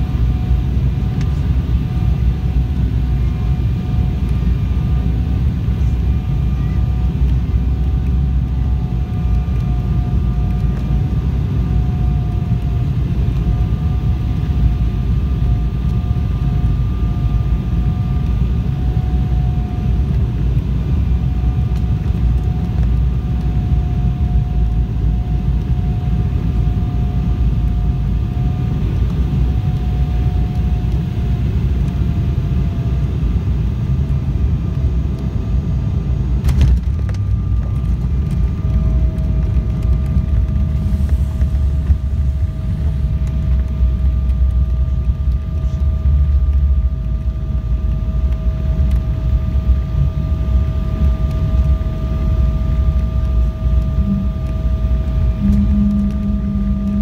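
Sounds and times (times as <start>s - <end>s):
jet engine rumble: 0.0s - 57.0s
whine sliding down in pitch: 36.4s - 57.0s.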